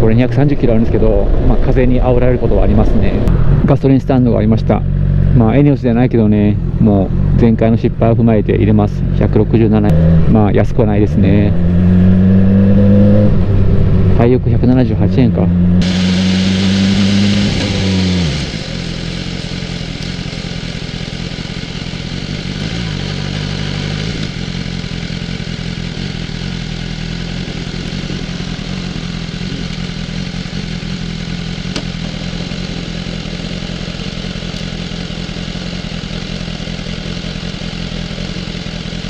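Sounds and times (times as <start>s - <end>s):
fuel pump humming: 15.8s - 39.0s.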